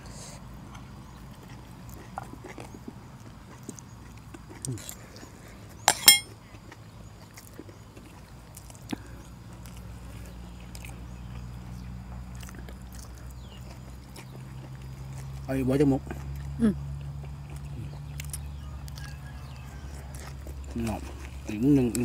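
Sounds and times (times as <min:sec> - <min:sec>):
low steady hum: 0:05.9 - 0:06.3.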